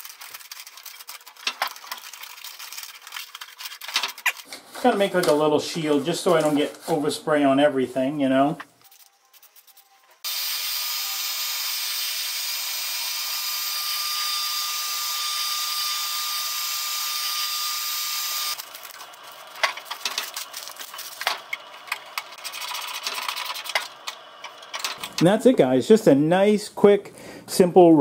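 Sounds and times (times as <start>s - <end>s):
heat gun blowing with whine: 10.2s - 19.7s.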